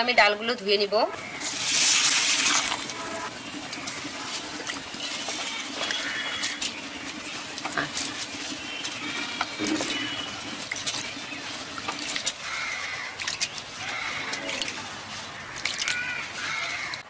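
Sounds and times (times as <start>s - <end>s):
water sloshing in metal bowl: 1.2s - 17.0s
grains clicking against metal: 1.4s - 14.8s.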